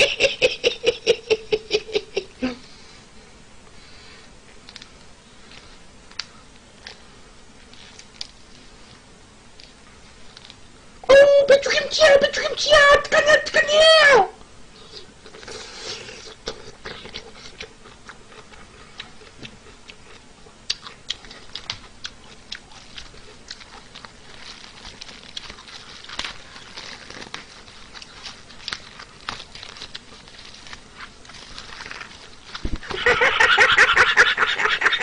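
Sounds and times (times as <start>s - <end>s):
wet chewing and lip-smacking: 14.9s - 32.6s.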